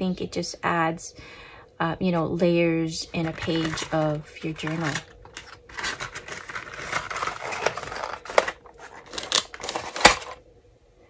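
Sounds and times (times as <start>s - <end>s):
cardboard box rustling: 3.3s - 10.4s.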